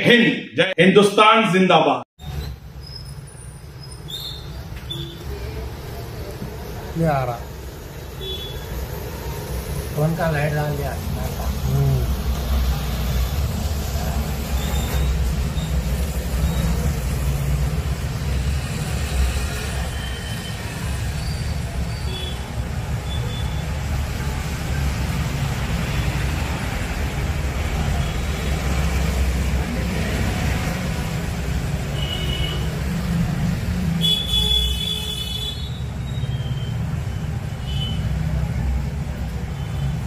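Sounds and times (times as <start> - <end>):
road traffic rumble: 2.2 - 40.0
vehicle horn toots: 8.2 - 8.8, 34.0 - 35.8.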